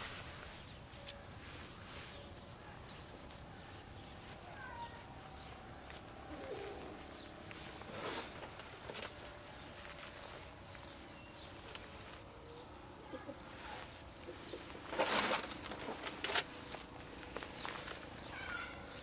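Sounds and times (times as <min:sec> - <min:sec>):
brief rustle: 0:14.8 - 0:18.0
faint bird chirps: 0:17.6 - 0:19.0.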